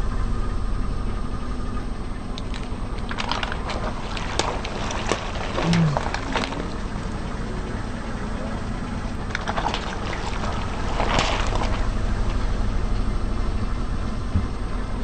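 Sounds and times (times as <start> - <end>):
car rumbling: 0.0 - 15.0
water beads splattering: 2.4 - 6.8
tyre squashing water beads: 2.4 - 7.4, 9.3 - 12.4.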